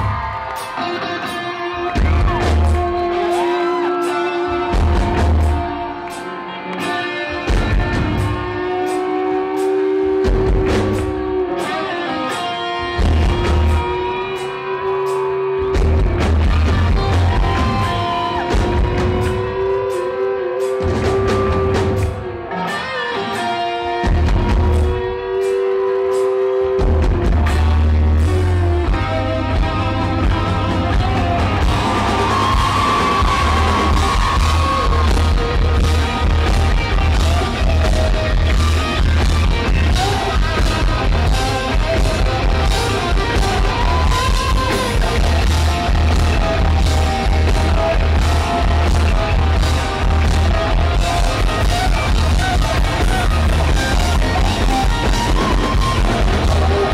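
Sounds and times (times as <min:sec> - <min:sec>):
electric guitars: 0:00.0 - 0:56.9
person singing: 0:00.6 - 0:15.7
drum beat: 0:30.3 - 0:56.9.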